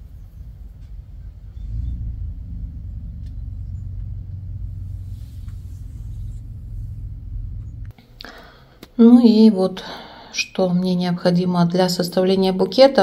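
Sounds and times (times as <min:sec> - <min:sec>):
steady low rumble: 0:00.0 - 0:08.1.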